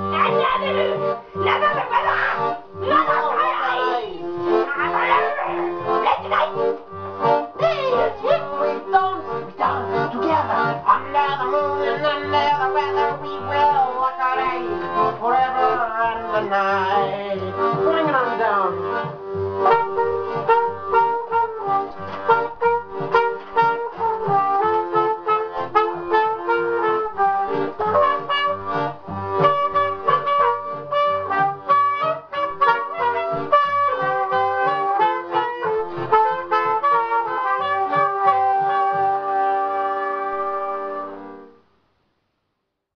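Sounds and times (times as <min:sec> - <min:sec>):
brass band music: 0:00.0 - 0:41.6
trumpet leading: 0:00.0 - 0:41.6.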